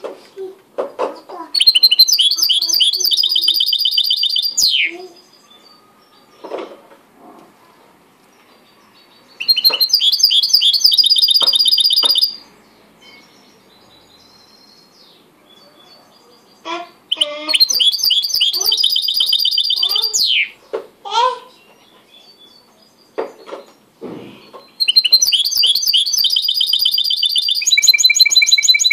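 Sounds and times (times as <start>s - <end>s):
finch singing: 1.6s - 6.6s, 8.5s - 12.4s, 13.0s - 20.6s, 24.4s - 28.9s.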